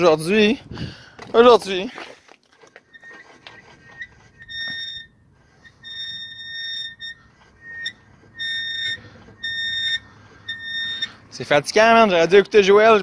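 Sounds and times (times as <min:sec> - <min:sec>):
disc brake squealing: 0:02.7 - 0:11.5.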